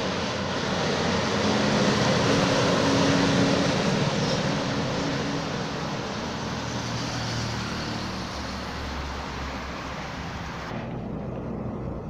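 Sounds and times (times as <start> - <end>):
cars passing: 0.0 - 12.0.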